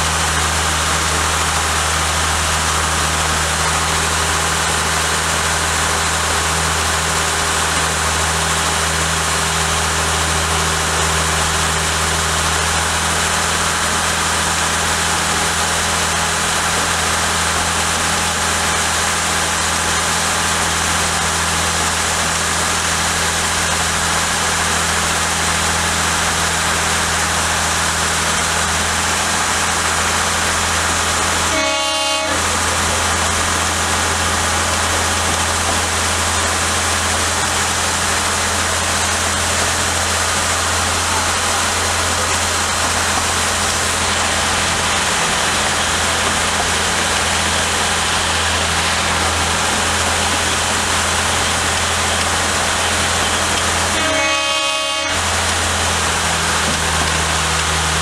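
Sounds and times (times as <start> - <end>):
locomotive engine drone: 0.0 - 58.0
locomotive whistle toot: 31.4 - 32.6, 53.9 - 55.4.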